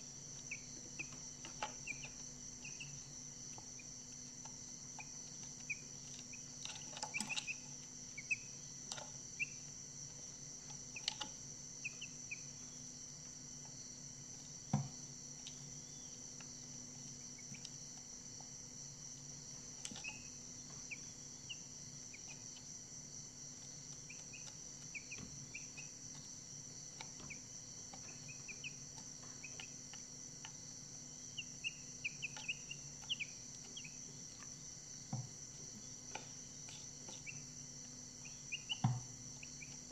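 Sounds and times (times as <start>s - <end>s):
cricket trill: 0.0s - 39.9s
chicks peeping: 0.3s - 12.7s, 17.4s - 17.7s, 19.8s - 22.7s, 23.6s - 30.6s, 31.2s - 34.5s, 35.8s - 39.9s.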